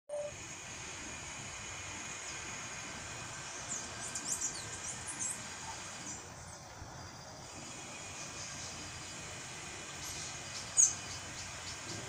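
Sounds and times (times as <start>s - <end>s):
blackbird singing: 0.1s - 0.3s, 3.5s - 5.4s, 10.0s - 12.0s
high insect drone: 0.2s - 12.0s.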